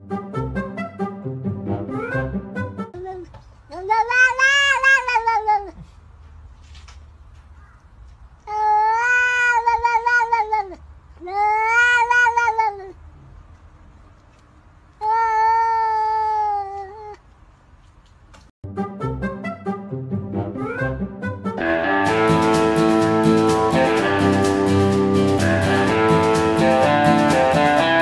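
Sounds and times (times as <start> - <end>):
cat meowing: 3.7 - 5.8, 8.5 - 13.0, 15.0 - 17.2.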